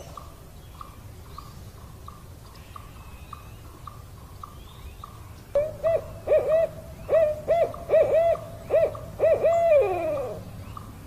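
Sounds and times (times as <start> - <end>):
owl hooting: 5.6 - 10.4.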